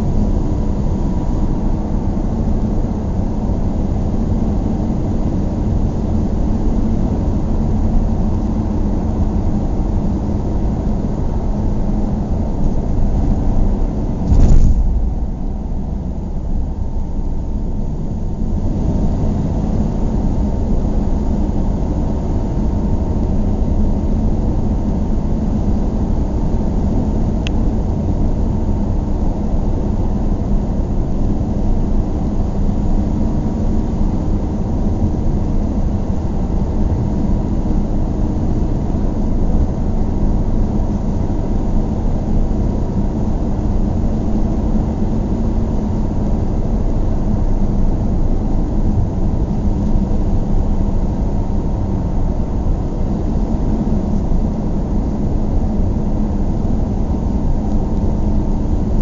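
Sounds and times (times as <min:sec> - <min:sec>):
car engine and road noise: 0:00.0 - 0:30.4.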